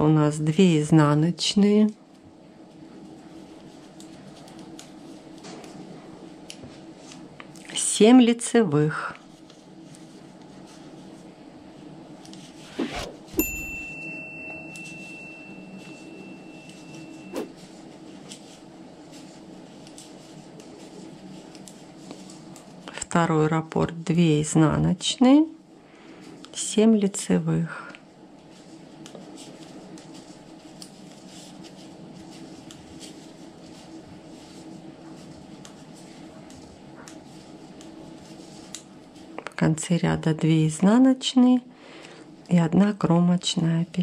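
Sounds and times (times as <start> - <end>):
low background hum: 0.0 - 44.0
whoosh: 12.6 - 13.4
sharp ringing ding: 13.4 - 17.5.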